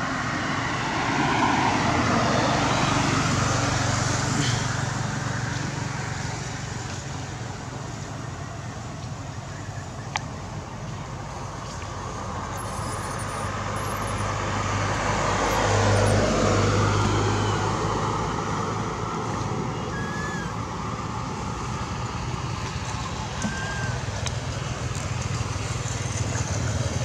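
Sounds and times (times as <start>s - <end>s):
motor vehicle passing: 11.4s - 27.0s.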